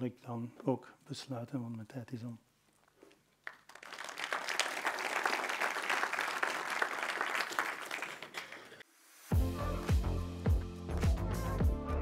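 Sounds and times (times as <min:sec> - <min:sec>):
audience applauding: 0:03.4 - 0:08.8.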